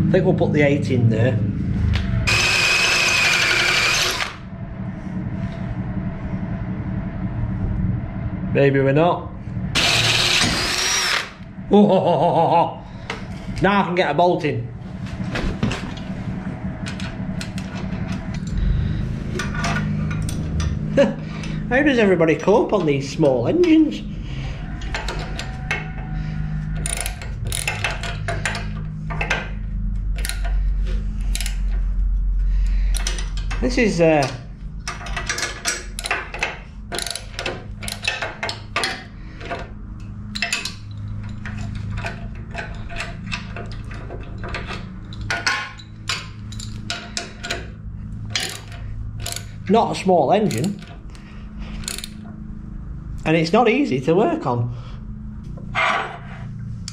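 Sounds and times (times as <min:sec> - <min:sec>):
low steady hum: 0:00.0 - 0:56.9
cordless drill whining into steel: 0:02.3 - 0:04.4, 0:09.8 - 0:11.4
socket ratchet clicking: 0:26.8 - 0:28.7, 0:30.2 - 0:30.6, 0:31.2 - 0:31.7, 0:35.9 - 0:39.0, 0:48.3 - 0:49.6, 0:51.8 - 0:52.2.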